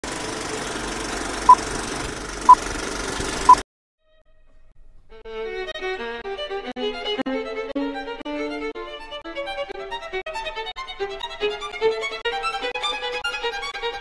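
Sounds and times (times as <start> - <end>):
violin music: 4.0 - 14.0.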